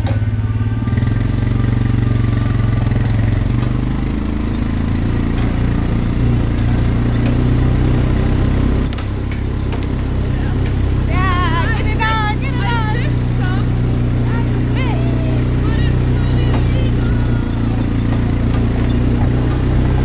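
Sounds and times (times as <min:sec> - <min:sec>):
vehicle engine running: 0:00.0 - 0:20.0.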